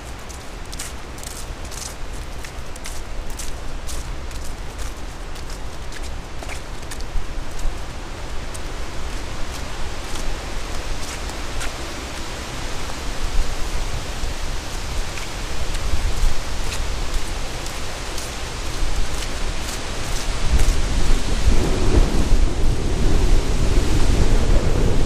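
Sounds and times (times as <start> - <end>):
wind buffeting microphone: 6.2 - 25.0.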